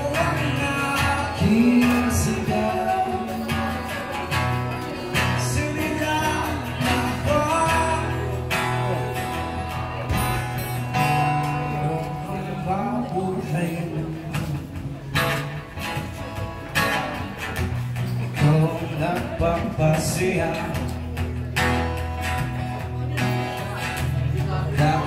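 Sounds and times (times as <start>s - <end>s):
man singing: 0.0s - 10.0s, 10.9s - 15.6s, 18.3s - 21.3s, 23.9s - 25.0s
acoustic guitars strummed and picked: 0.0s - 25.0s.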